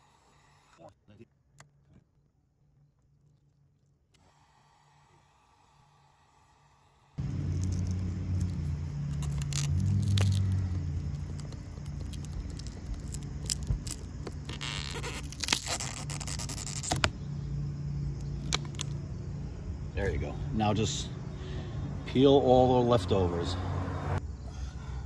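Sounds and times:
steady low hum: 2.9 - 23.4
screwdriver scraping and tape tearing: 7.4 - 17.1.

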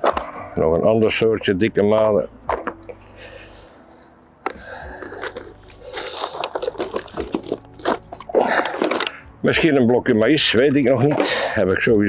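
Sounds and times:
plastic packaging rustling: 4.4 - 9.3.

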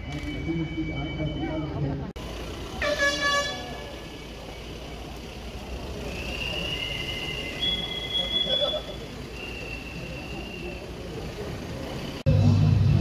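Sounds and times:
high whistle-like tones: 0.0 - 1.8, 5.9 - 11.0
crowd walking along street: 0.0 - 13.0
squeal with falling pitch: 6.4 - 10.8.

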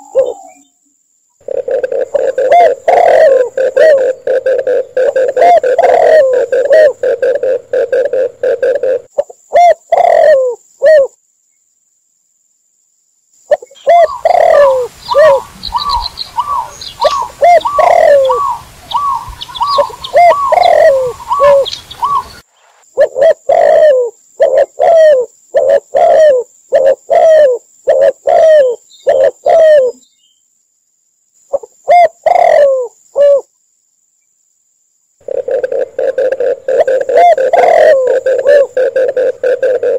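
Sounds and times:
doves cooing: 0.0 - 0.6, 1.4 - 11.1, 13.5 - 22.4, 23.0 - 30.0, 31.5 - 33.4, 35.2 - 39.9
small birds chirping: 13.5 - 22.9, 27.8 - 30.5.

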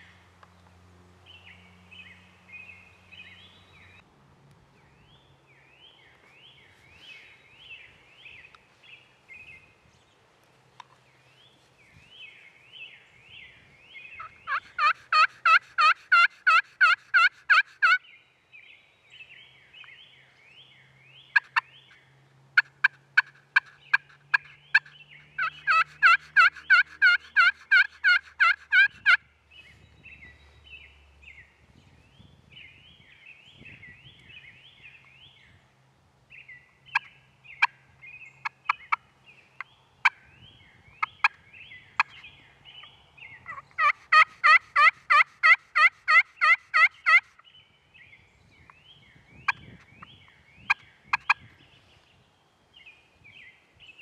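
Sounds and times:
turkey clucks: 14.2 - 18.0, 21.3 - 21.7, 22.6 - 29.2, 38.4 - 39.0, 43.4 - 47.4, 50.7 - 51.4
wild turkeys yelping: 14.2 - 18.0, 21.3 - 21.6, 22.6 - 29.2, 43.4 - 47.4.

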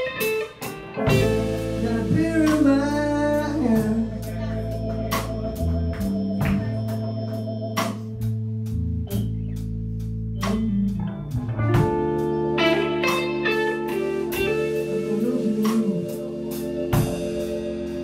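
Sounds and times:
drum kit cymbal strikes: 0.0 - 7.0, 13.0 - 18.0
lead guitar held notes: 0.0 - 8.4, 10.4 - 18.0
electric guitars: 0.0 - 9.5, 10.4 - 18.0
bass guitar: 0.0 - 18.0.

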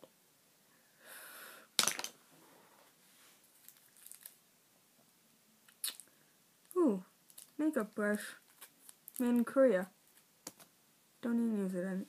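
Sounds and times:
sharp plastic crackle: 3.6 - 4.4, 7.3 - 7.6, 8.4 - 9.5.

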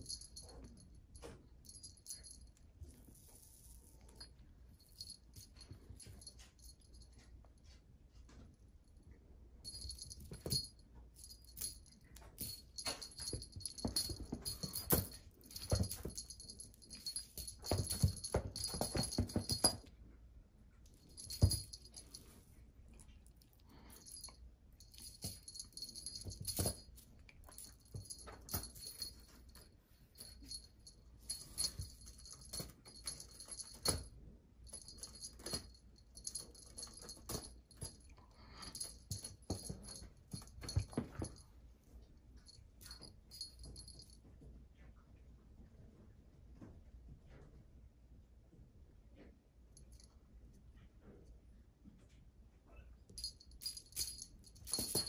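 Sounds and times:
small bell jingling: 0.0 - 7.3, 9.6 - 20.0, 20.8 - 22.4, 23.6 - 41.6, 42.4 - 44.2, 53.1 - 55.0
kittens knocking and scuffling: 9.7 - 20.0, 21.0 - 22.4, 24.9 - 41.6, 53.2 - 55.0.

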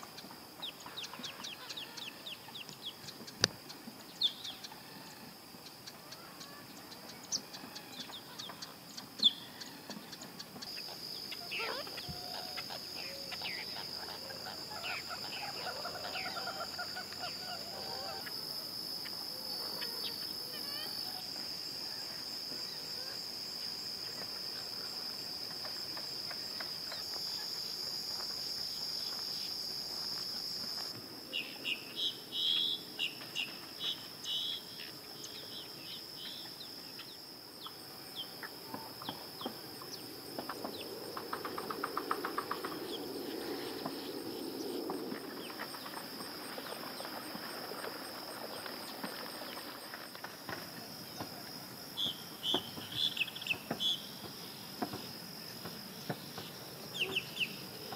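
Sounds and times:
high-pitched insect drone: 10.7 - 48.7.

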